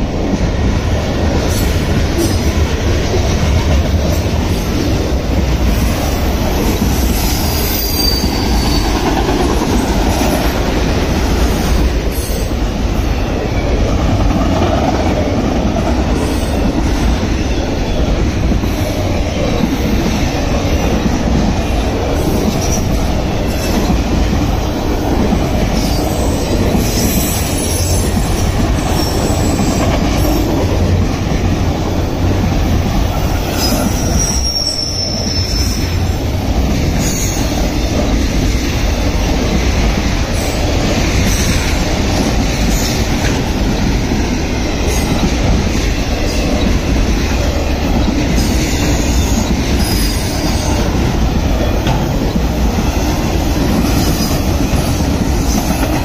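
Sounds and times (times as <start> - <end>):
train wheels on rails: 0.0 - 56.0
high wheel squeals: 7.1 - 9.0, 33.5 - 35.9.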